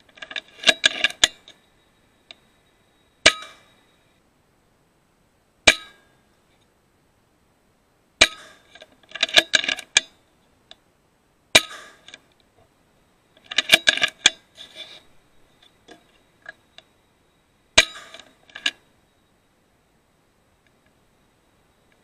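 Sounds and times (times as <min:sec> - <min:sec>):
metallic clicks and clatter: 0:00.0 - 0:01.6, 0:08.2 - 0:10.1, 0:13.4 - 0:14.4
air rifle shots in metal shed: 0:03.2 - 0:03.7, 0:05.7 - 0:06.1, 0:08.2 - 0:08.7, 0:11.6 - 0:12.1, 0:17.8 - 0:18.3.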